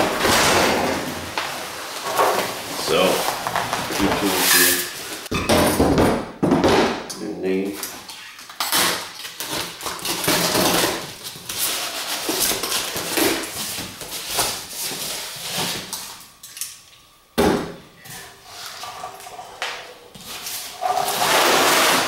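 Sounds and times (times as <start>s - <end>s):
packing tape ripping: 8.3s - 16.1s.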